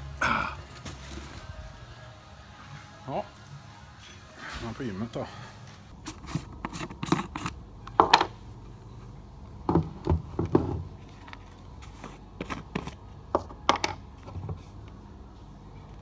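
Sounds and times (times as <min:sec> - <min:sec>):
plastic containers knocked and set down: 0:09.7 - 0:10.8.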